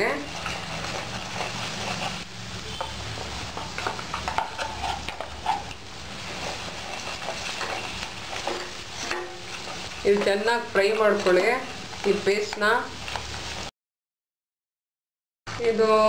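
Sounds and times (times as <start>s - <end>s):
spoon scraping steel pan: 0.0s - 12.8s
oil sizzling: 0.0s - 13.7s.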